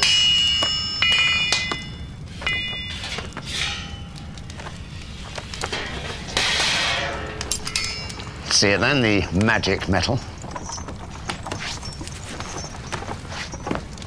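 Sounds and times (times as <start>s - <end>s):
hammer striking metal: 0.0s - 4.4s, 5.7s - 9.2s.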